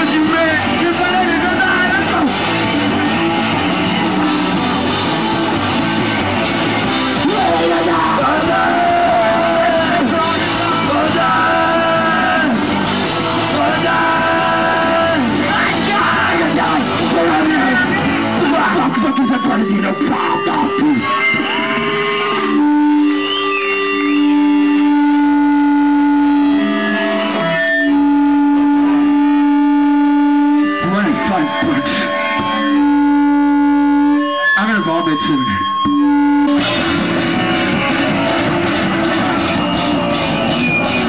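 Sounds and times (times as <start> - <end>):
drums: 0.0 - 41.0
electric guitar: 0.0 - 41.0
shouted vocals: 7.0 - 22.3.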